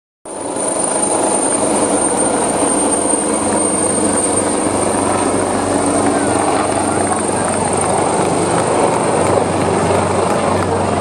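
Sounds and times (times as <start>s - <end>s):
thin high whine: 0.3s - 9.4s
helicopter rotor chop and engine: 0.3s - 11.0s.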